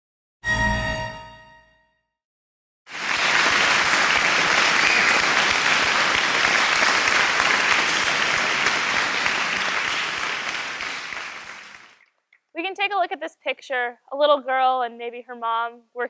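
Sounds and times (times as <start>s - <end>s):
audience applauding: 2.9s - 12.0s.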